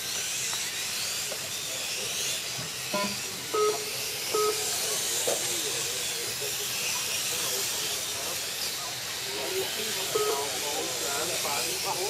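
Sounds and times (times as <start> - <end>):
model motorcycle motors whining: 0.0 - 12.0
short electronic beeps: 3.0 - 4.6, 10.1 - 10.5.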